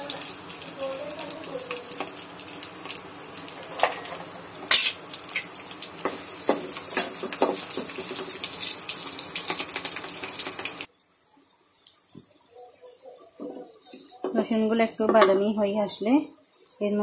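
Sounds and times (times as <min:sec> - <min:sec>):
garlic sizzling in hot oil: 0:00.0 - 0:17.0.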